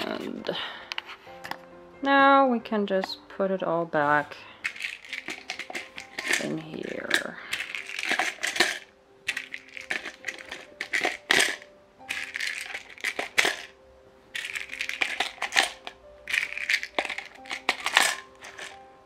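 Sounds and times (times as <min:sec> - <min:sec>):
plastic pods clicking into tray: 0:04.6 - 0:13.7, 0:14.4 - 0:18.8
pills rattling: 0:04.6 - 0:18.9.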